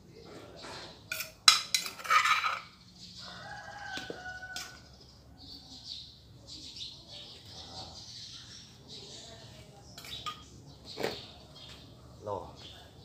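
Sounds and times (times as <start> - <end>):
rooster crowing: 3.2 - 4.9.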